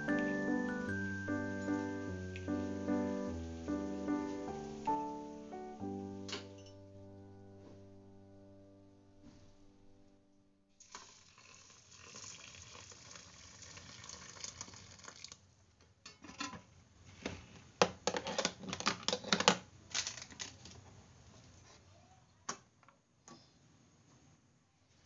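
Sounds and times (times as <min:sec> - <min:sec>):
water pouring and splashing: 0:10.8 - 0:15.5.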